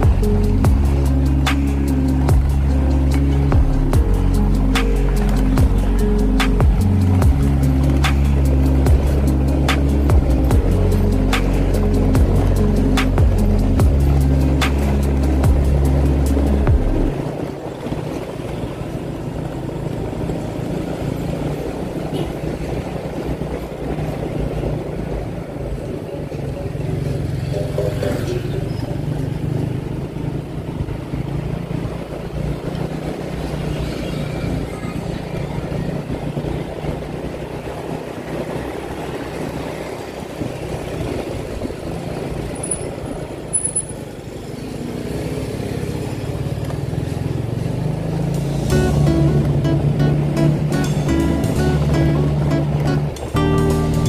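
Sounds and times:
motorbike engine running: 0:00.0 - 0:54.0
motorbike passing: 0:00.0 - 0:54.0
road noise: 0:00.0 - 0:54.0.

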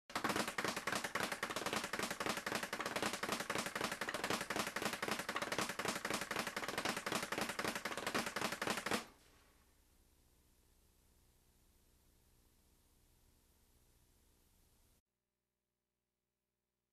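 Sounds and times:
speed bag being punched: 0:00.1 - 0:09.1.

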